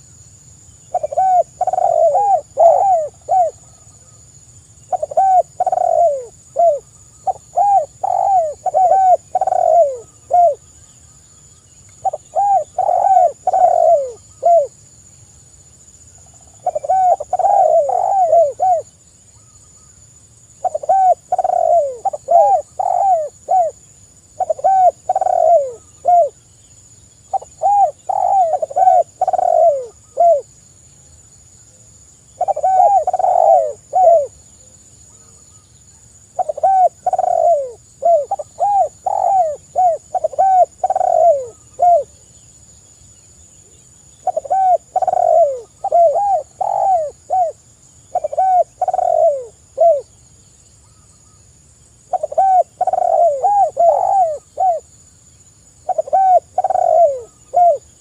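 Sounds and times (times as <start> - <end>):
doves cooing: 0.9 - 3.8, 4.9 - 10.6, 12.0 - 14.7, 16.2 - 18.9, 20.6 - 23.8, 24.4 - 26.4, 27.3 - 30.5, 32.4 - 34.4, 36.4 - 42.2, 44.2 - 50.1, 52.1 - 54.9, 55.8 - 58.0.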